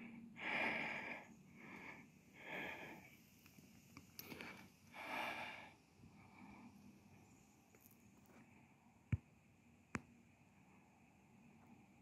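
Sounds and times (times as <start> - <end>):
breathy exhale: 0.0 - 3.2, 4.2 - 6.8.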